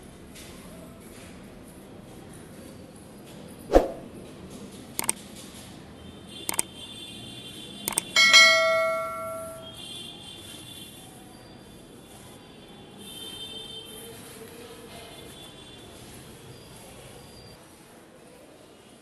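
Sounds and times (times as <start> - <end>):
mouse clicks: 7.9 - 8.1
notification bell ding: 8.2 - 9.7.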